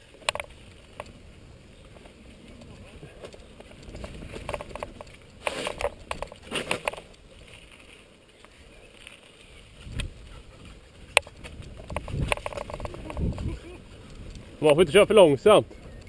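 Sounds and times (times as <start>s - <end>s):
tyres rolling on dirt: 0.0s - 16.0s
bike frame and chain clattering: 1.8s - 10.0s, 10.6s - 15.2s.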